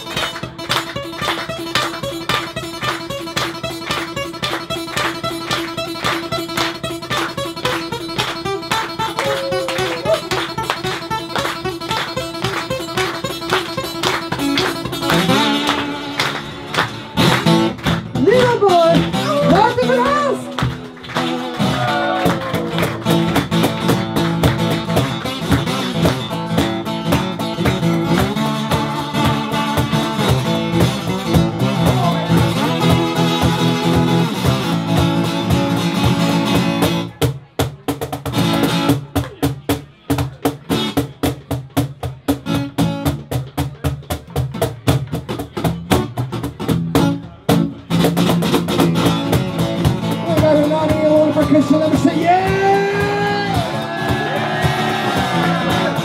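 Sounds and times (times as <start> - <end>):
harmonica bending notes: 0.0 - 17.8
acoustic guitar strumming: 0.0 - 56.0
cajon beats: 0.0 - 56.0.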